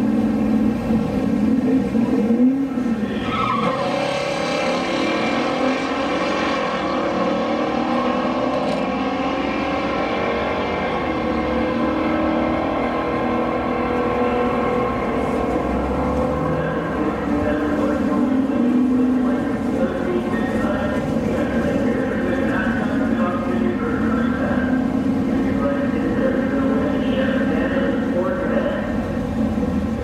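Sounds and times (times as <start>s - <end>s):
car engines idling: 0.0s - 4.2s, 7.3s - 30.0s.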